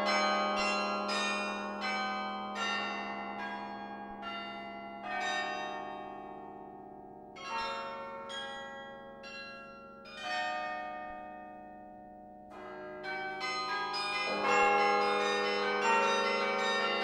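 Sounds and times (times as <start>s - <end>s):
carillon bells playing chords: 13.0s - 17.0s.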